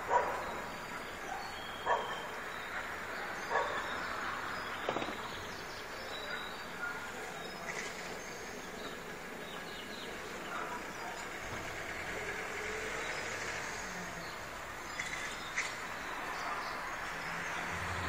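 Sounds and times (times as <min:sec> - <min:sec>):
dog barking: 0:00.0 - 0:04.0, 0:10.5 - 0:11.4.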